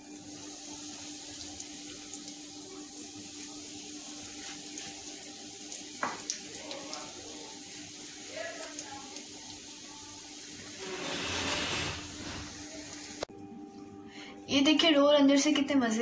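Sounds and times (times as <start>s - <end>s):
food sizzling in hot oil: 0.0s - 13.3s.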